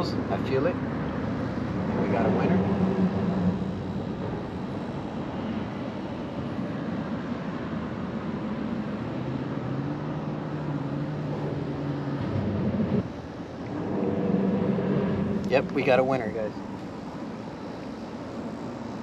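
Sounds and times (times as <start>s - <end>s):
constant rushing noise: 0.0s - 19.0s
motor engine humming: 1.0s - 5.4s, 10.8s - 18.4s.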